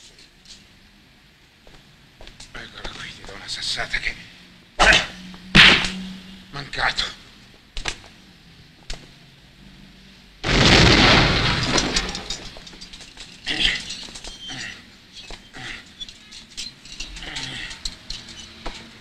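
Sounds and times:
loud crash: 10.4 - 12.8
crackling clatter: 10.4 - 19.0.

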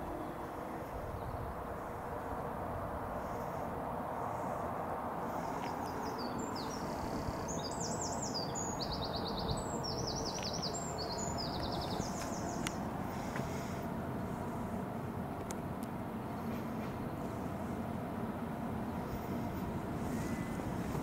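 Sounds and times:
outdoor background rush: 0.0 - 21.0
small bird chirping trills: 5.4 - 12.8.

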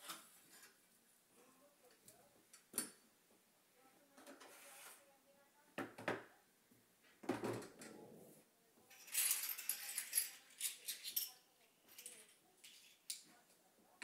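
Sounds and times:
soft rustle: 4.4 - 5.1.

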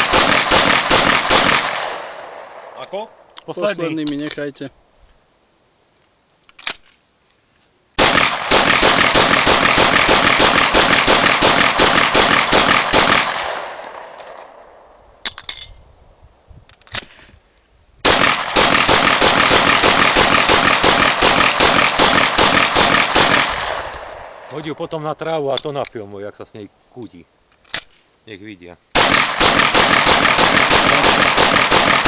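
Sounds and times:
pistol shots: 0.0 - 2.8, 8.0 - 14.4, 18.0 - 24.5, 29.0 - 32.0.

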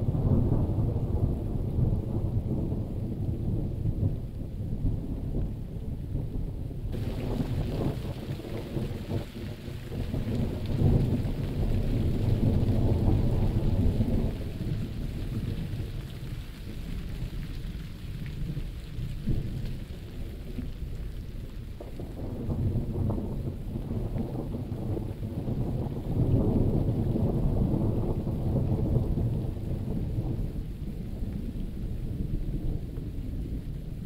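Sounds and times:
rolling thunder: 0.0 - 34.0
steady rain: 0.0 - 34.0.

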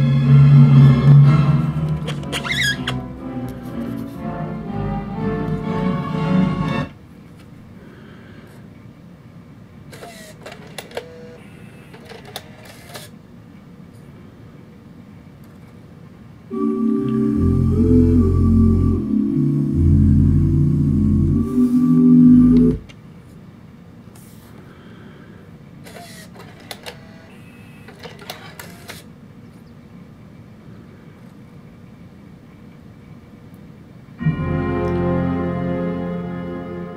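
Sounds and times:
music playing: 0.0 - 7.0, 16.5 - 22.8, 34.2 - 36.9
faint low hum: 0.0 - 25.9
short motor whirs: 9.9 - 13.1, 25.8 - 29.0
sharp mechanical clicks: 9.9 - 13.2, 25.8 - 27.3
cd changer motor whirring: 10.0 - 13.1.

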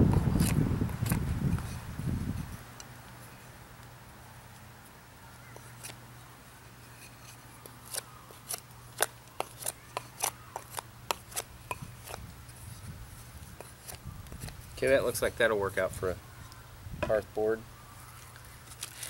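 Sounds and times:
knife scraping wood: 0.1 - 2.6, 6.8 - 14.7.

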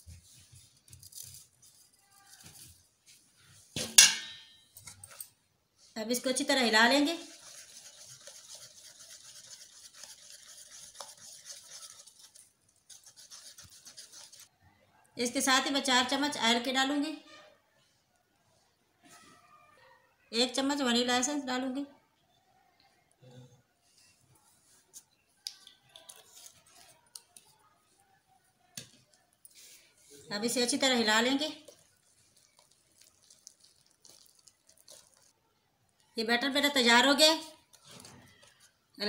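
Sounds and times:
whisk beating batter in bowl: 7.0 - 14.5.

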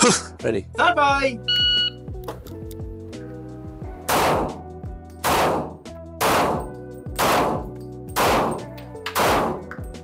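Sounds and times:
pistol shots with echo: 5.2 - 8.6, 9.2 - 9.6.

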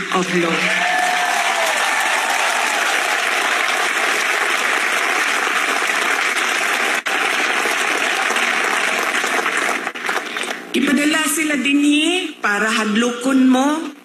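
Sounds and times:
large crowd applauding: 0.0 - 10.7.

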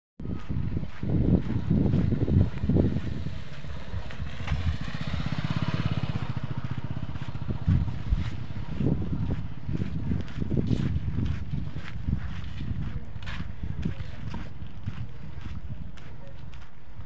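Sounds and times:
wind buffeting on microphone: 0.2 - 17.0
motorcycle engine passing: 0.3 - 12.4.

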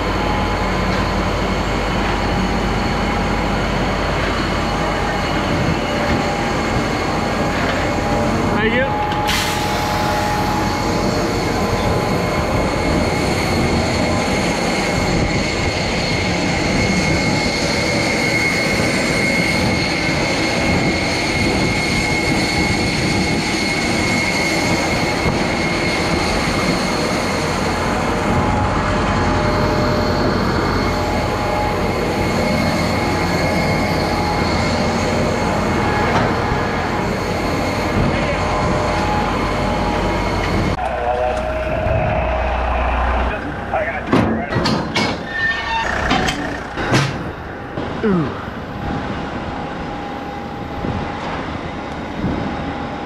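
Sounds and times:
steady high whine: 0.0 - 44.6
fuel truck pumping engine: 9.3 - 10.5.

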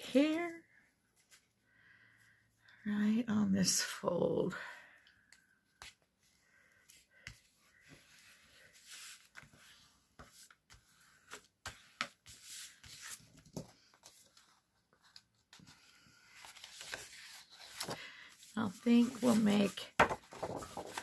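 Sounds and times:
paper rustling and scraping: 6.9 - 21.0.

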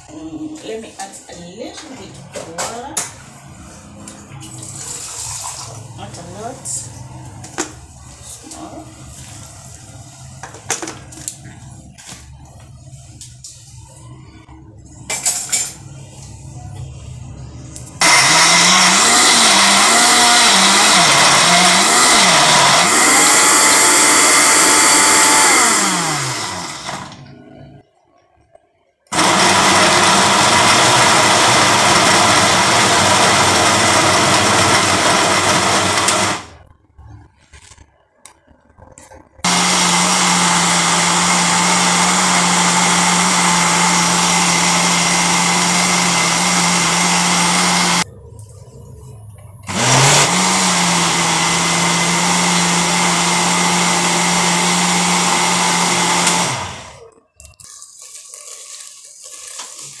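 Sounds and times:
blender motor grinding: 18.0 - 27.2, 29.1 - 36.7, 39.4 - 48.1, 49.6 - 57.1.

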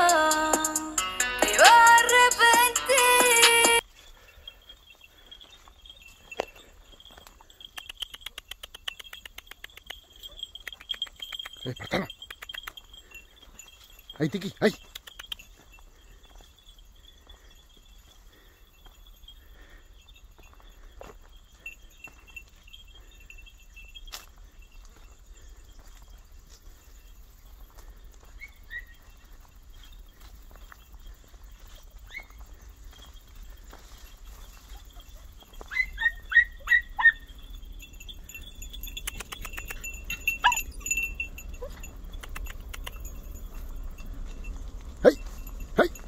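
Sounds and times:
dog bells jingling: 0.0 - 46.0
dog yelping: 34.7 - 37.3, 39.1 - 43.0.

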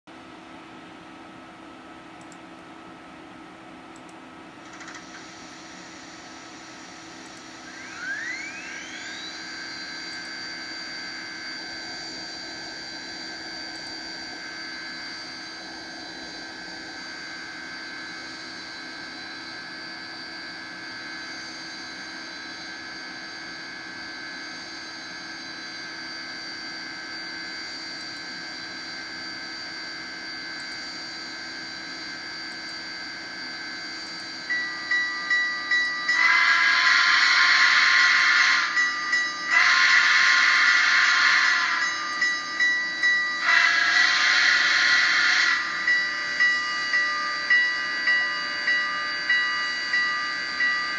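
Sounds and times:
high whine: 3.2 - 50.9
short pulsing tones: 4.7 - 20.1, 33.8 - 50.9
locomotive whistle: 7.3 - 26.3, 34.0 - 50.9
steam locomotive hiss: 34.8 - 50.9.

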